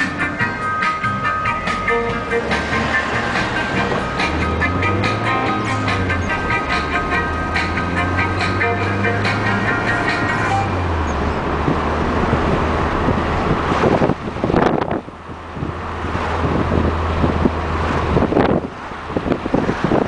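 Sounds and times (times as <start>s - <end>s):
car engine and tyres drone: 0.0s - 20.0s
wind buffeting microphone: 10.3s - 20.0s.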